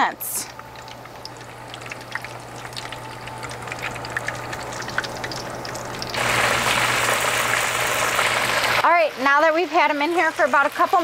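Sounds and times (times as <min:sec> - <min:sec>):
fish deep-frying in oil: 0:00.0 - 0:11.0.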